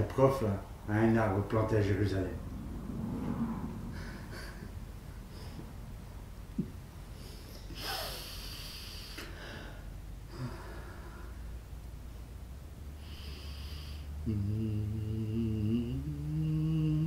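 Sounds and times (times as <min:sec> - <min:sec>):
person breathing and sniffing: 0:07.1 - 0:11.4.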